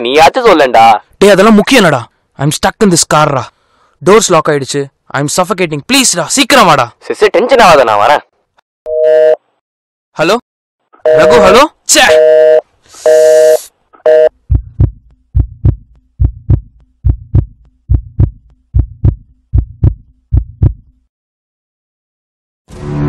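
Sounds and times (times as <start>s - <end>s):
phone busy tone beeping: 8.9s - 9.4s, 11.1s - 14.4s
heartbeat thumps: 14.2s - 21.0s.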